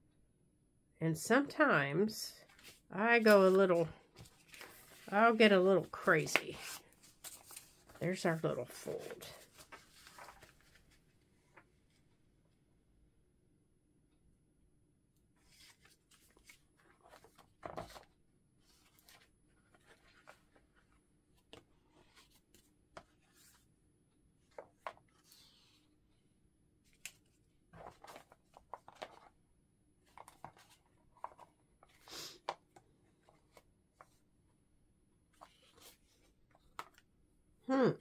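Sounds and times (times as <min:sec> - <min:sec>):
paper and card rustling: 0:02.4 - 0:11.1, 0:15.4 - 0:23.7, 0:26.9 - 0:29.3, 0:30.0 - 0:34.2, 0:35.4 - 0:37.0.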